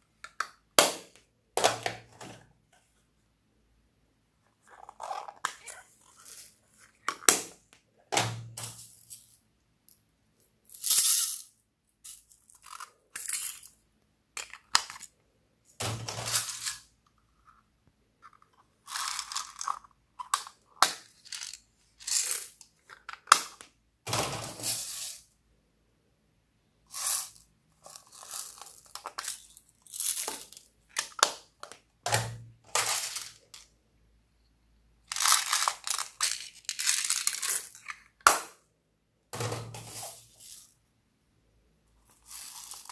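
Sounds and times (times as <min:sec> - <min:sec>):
beads spilling into glass dish: 0:10.7 - 0:11.4, 0:24.3 - 0:25.3, 0:26.9 - 0:30.6, 0:42.1 - 0:42.9.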